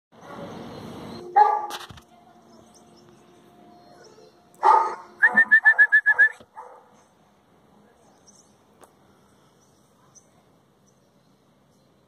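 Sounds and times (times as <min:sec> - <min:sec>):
dogs barking: 0:01.3 - 0:01.8, 0:04.0 - 0:07.0
high-pitched dog yaps: 0:04.6 - 0:06.8.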